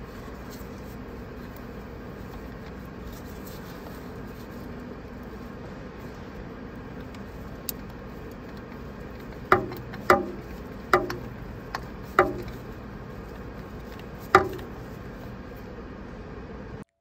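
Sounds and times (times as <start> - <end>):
steady workshop hum: 0.0 - 16.9
ratchet wrench metallic clanks: 7.0 - 12.9, 13.8 - 14.9.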